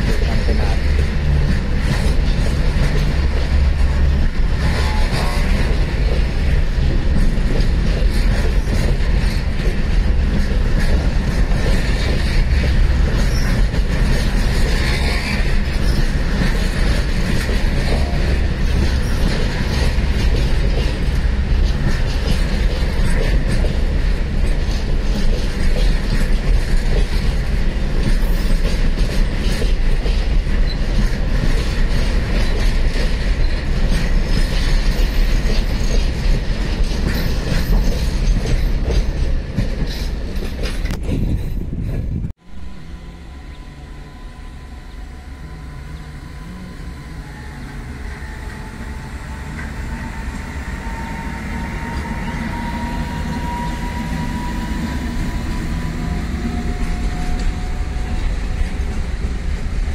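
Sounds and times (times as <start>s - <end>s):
train wheels clattering over rails: 0.0s - 42.3s
low rumble of train wagons: 0.0s - 59.9s.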